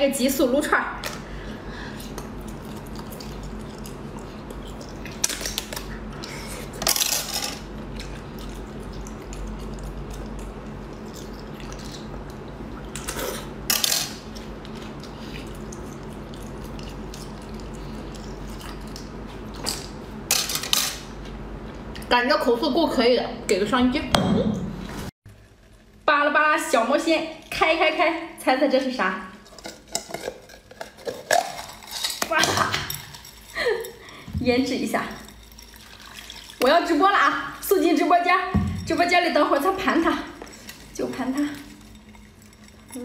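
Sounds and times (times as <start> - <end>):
slurping and clicking eating: 7.9 - 13.5.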